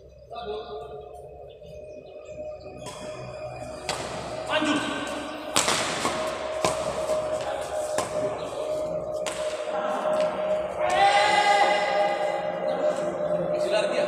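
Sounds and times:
rackets striking shuttlecock: 3.8 - 4.4, 5.5 - 10.3.

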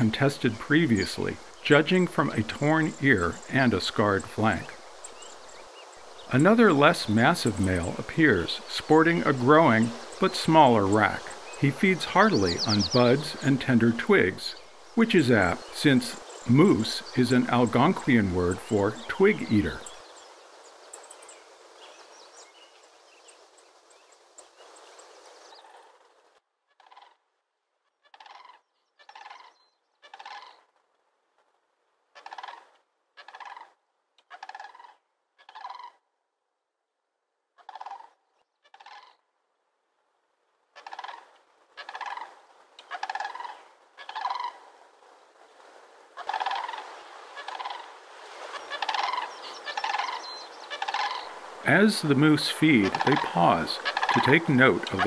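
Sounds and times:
faint outdoor hiss: 0.0 - 55.0
cranes rattling calls: 26.7 - 27.2, 28.1 - 30.7, 32.2 - 36.0, 37.6 - 39.2, 40.8 - 44.8, 46.1 - 55.0.

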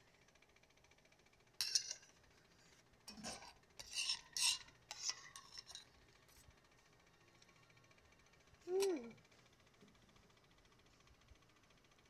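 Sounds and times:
spoon scraping steel bowl: 3.1 - 5.9.

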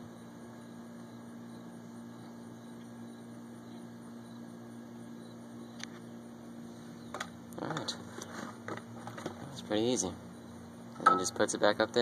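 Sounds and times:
steady low hum: 0.0 - 12.0
small click: 5.8 - 6.0.

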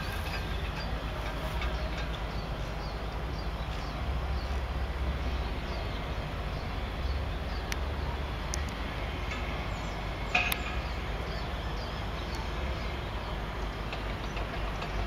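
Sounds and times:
low traffic rumble: 0.0 - 15.0
small birds chirping: 0.0 - 15.0.

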